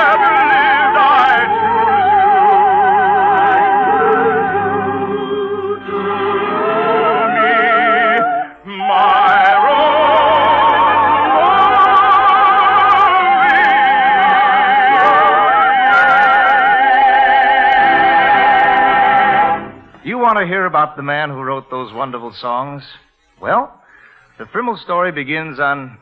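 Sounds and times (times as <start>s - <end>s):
orchestral music with heavy vibrato: 0.0s - 20.4s.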